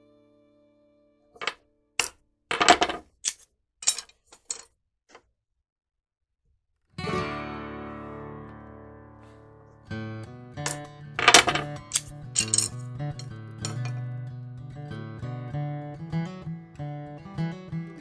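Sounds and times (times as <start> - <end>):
strummed acoustic guitar chord: 7.0 - 18.0.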